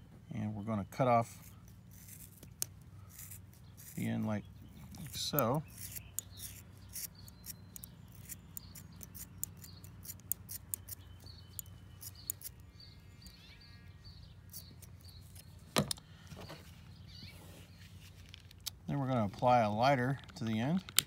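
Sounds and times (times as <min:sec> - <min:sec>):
scissors snipping rope: 0:04.9 - 0:12.6.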